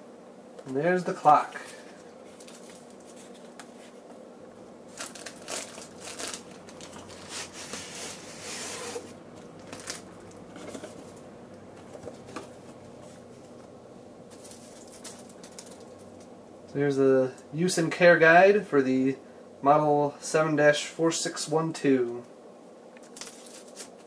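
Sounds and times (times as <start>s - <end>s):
plastic wrap crinkling: 1.6s - 4.0s, 4.9s - 11.0s, 14.3s - 16.3s, 23.0s - 24.0s
cardboard and foam scraping: 7.1s - 9.2s.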